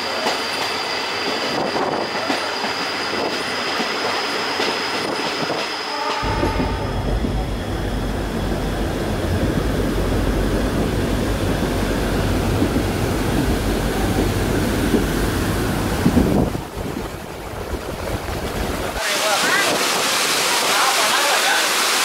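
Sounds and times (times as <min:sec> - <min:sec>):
passing train rumble: 0:00.0 - 0:22.0
wind on microphone: 0:06.2 - 0:19.0
waterfall roaring: 0:18.4 - 0:22.0.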